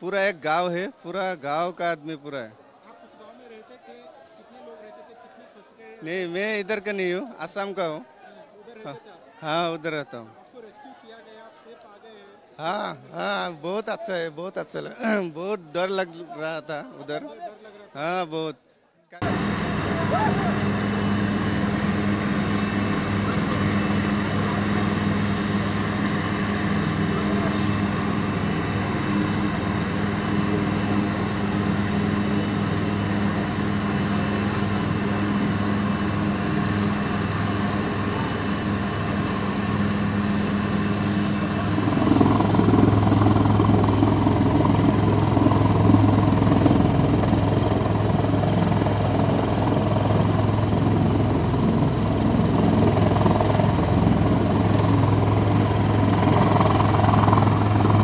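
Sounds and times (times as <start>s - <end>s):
helicopter turbine and rotor: 6.0s - 8.0s, 12.6s - 17.3s, 19.2s - 58.0s.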